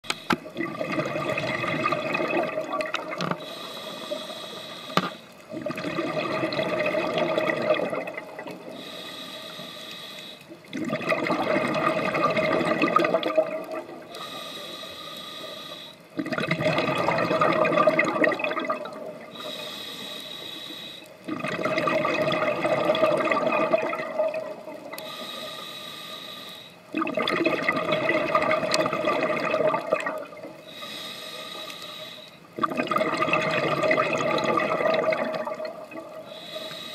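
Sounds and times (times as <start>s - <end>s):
bubbling exhalations underwater: 0.5s - 3.4s, 5.5s - 8.7s, 10.7s - 14.1s, 16.2s - 19.3s, 21.3s - 25.0s, 26.9s - 30.6s, 32.6s - 36.3s.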